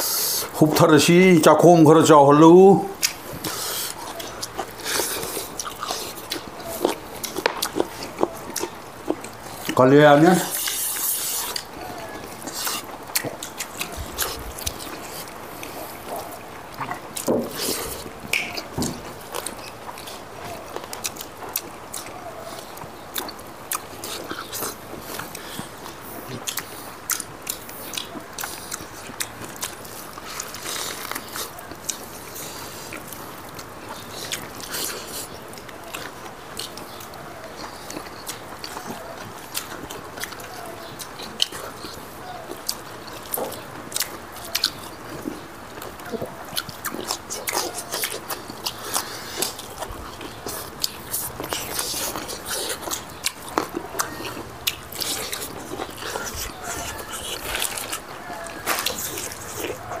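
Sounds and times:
mouth clicking and smacking: 0.0 - 60.0
people chewing: 0.0 - 60.0.

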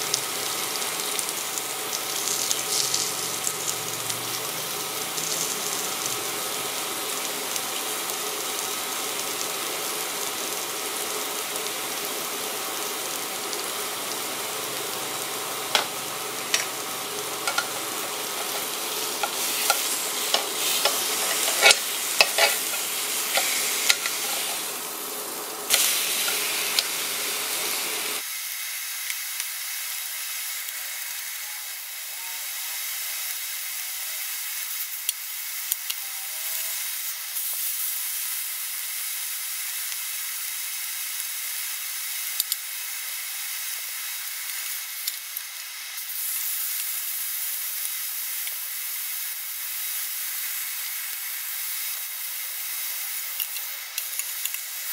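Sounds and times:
steak sizzling in a grill pan: 0.0 - 54.9
metal tongs clicking and scraping: 17.5 - 17.8, 18.4 - 24.5.

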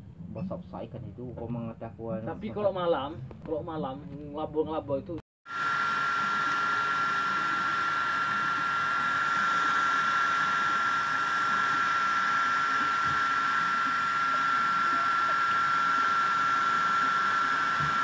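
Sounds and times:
small motor whirring: 5.5 - 18.0.

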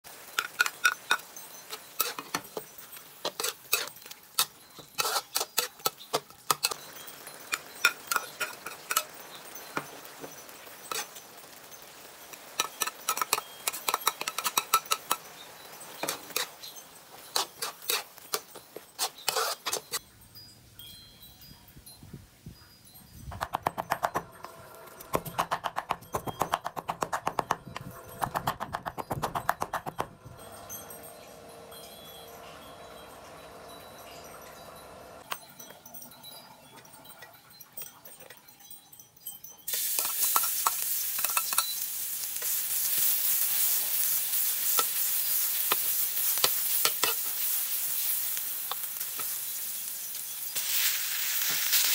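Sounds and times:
food stir-frying: 0.0 - 20.0, 39.7 - 51.9
metal spatula scraping wok: 0.1 - 9.7, 10.8 - 11.2, 12.3 - 20.0, 39.7 - 51.9.

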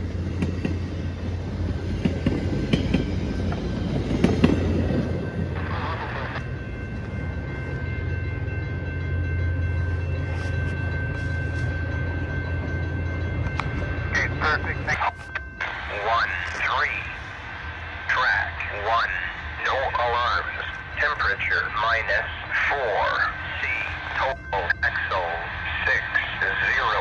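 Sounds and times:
train cars rumbling by: 0.0 - 27.0.

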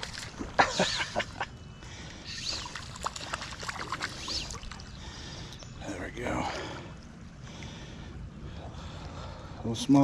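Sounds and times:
creek water splashing: 0.0 - 5.5.

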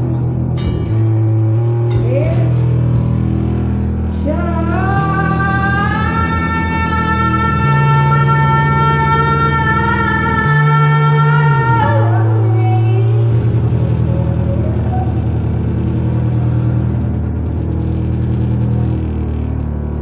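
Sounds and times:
held high note: 0.0 - 4.0
low wobbling drone: 0.0 - 20.0.

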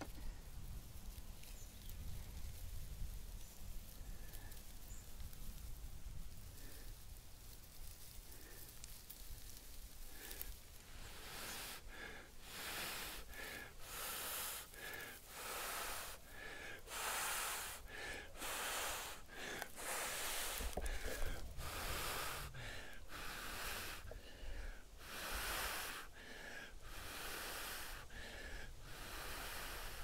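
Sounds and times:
gasping breaths: 10.1 - 30.0
man blowing hard: 11.2 - 24.2, 25.0 - 30.0.

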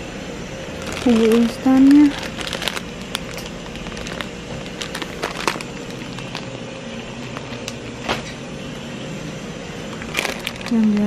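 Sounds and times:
steady low hum: 0.0 - 11.0
plastic packets crackling: 0.7 - 7.9, 9.8 - 11.0.

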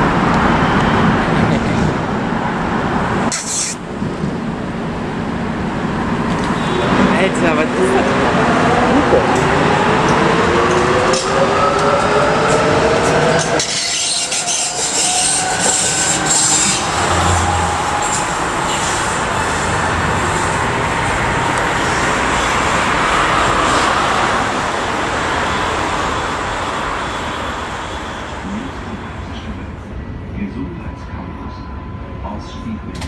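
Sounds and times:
steel wheels rolling on rail: 3.9 - 29.5.

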